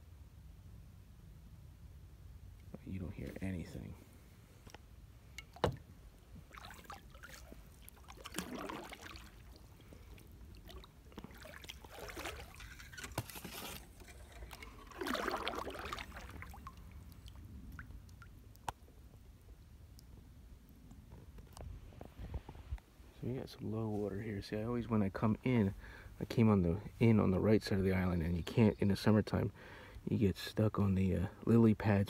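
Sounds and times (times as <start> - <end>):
paddle swishing in water: 5.4 - 17.8.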